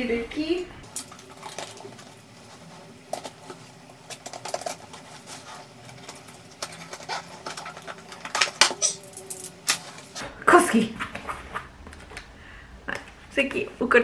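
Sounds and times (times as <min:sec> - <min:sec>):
packaging rustling and crinkling: 0:00.9 - 0:10.2.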